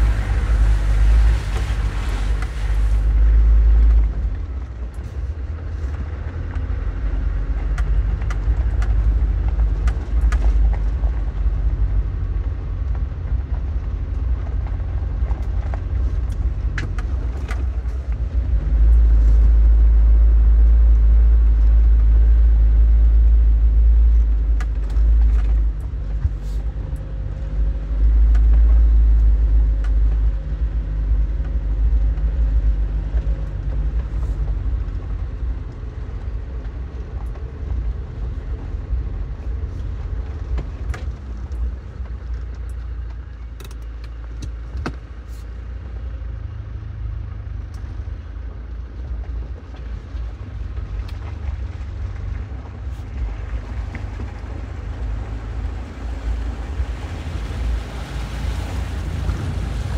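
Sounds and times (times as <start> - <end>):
engine and tyre rumble: 0.0 - 59.9
vehicle knocks and rattles: 27.8 - 45.2.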